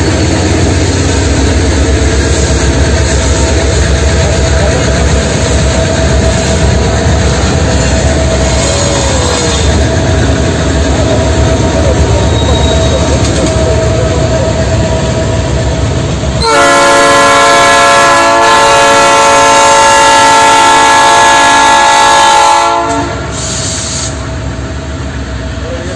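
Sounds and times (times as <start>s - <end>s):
diesel locomotive engine and wheels: 0.0s - 25.9s
locomotive air horn blast: 16.4s - 24.2s.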